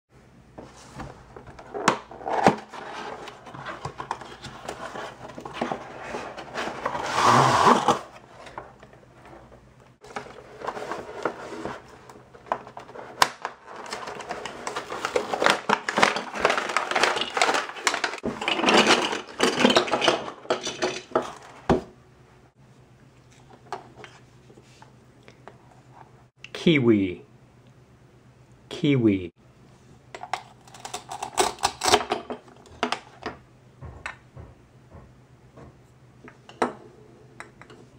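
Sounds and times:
plastic tray crinkling: 13.6 - 19.9.

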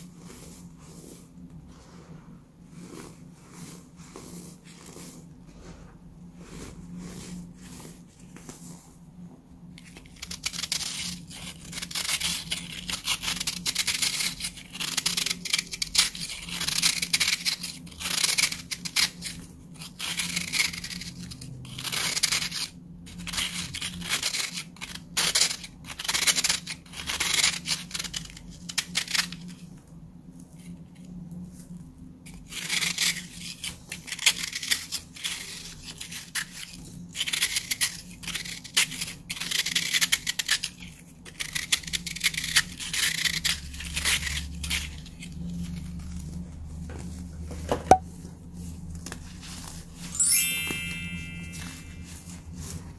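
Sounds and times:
crunching baking soda block: 2.7 - 5.3, 9.8 - 29.4.

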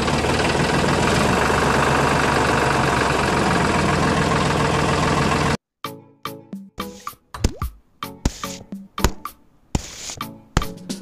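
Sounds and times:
tractor engine running: 0.0 - 5.6.

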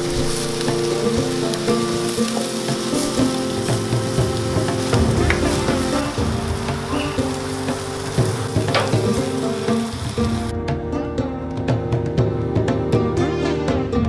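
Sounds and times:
meat sizzling over charcoal: 0.0 - 10.5
background music with held notes: 0.0 - 14.0.

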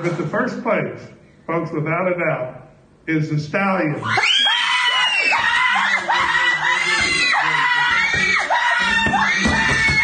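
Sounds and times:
people screaming and cheering: 4.0 - 10.0.

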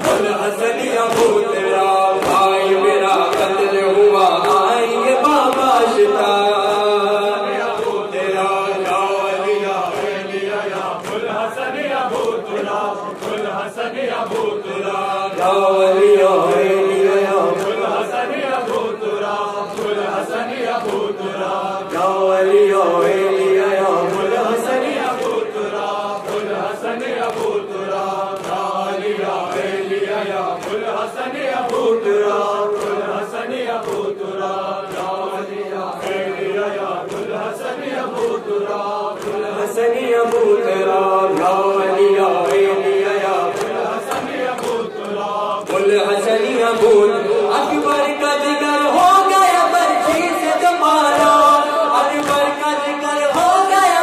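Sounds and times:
chest-beating slaps: 0.0 - 3.7, 7.6 - 15.6, 24.1 - 39.5, 42.4 - 45.9
group of men singing: 0.0 - 54.0
man chanting into microphone: 0.0 - 54.0.

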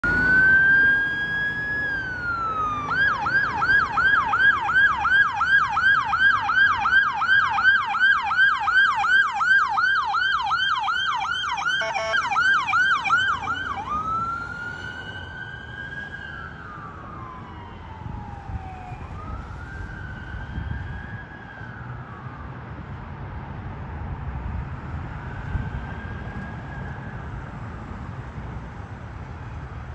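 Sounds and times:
electronic siren wailing and yelping: 0.0 - 20.8
harsh siren burst: 0.0 - 22.5.

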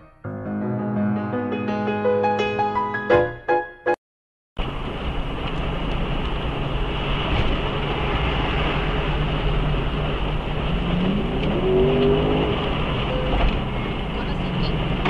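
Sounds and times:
car road and engine noise: 4.6 - 15.0
engine note rising: 7.7 - 15.0.

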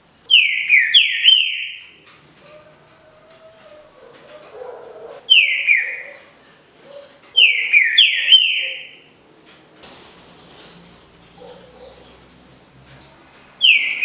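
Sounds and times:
bird whistled song: 0.3 - 1.9, 5.3 - 6.2, 6.9 - 9.0, 13.6 - 14.0.

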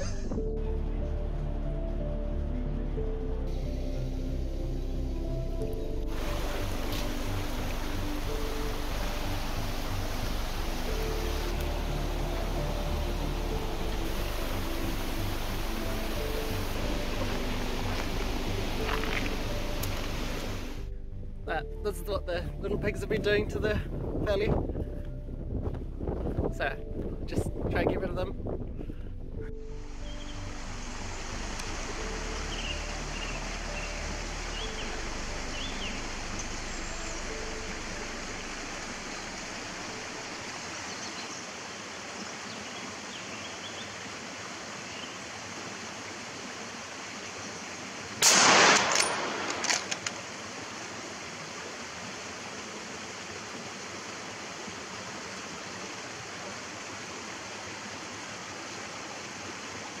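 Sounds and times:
soft music: 0.0 - 46.2, 47.8 - 56.8
outdoor background hiss: 1.4 - 24.7, 29.2 - 60.0
loud sudden burst: 48.2 - 49.4.

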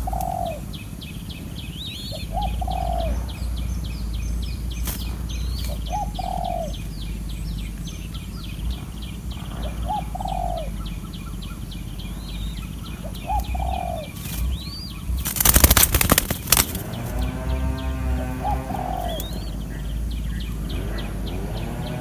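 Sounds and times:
dove cooing: 0.0 - 0.8, 2.1 - 3.4, 5.1 - 6.9, 8.7 - 11.6, 12.7 - 22.0
wings flapping: 4.8 - 5.8, 14.1 - 17.4
fast high chirping: 13.8 - 17.0.

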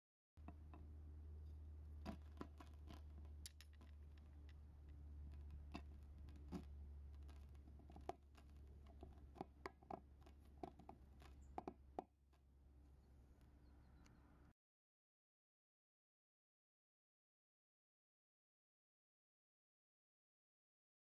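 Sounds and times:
low steady hum: 0.4 - 14.5
clicks and squeaks of handling: 1.5 - 12.5.

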